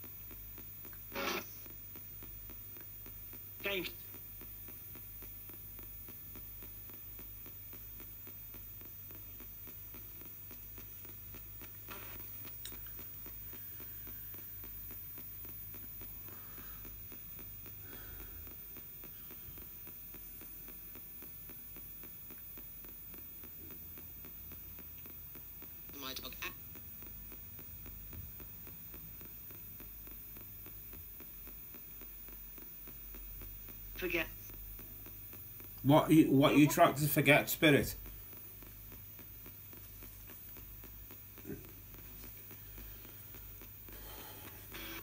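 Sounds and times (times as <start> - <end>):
radio static: 0.0 - 21.8, 24.8 - 45.0
faint snatches of radio sound: 0.6 - 6.8, 8.6 - 16.1, 41.4 - 45.0.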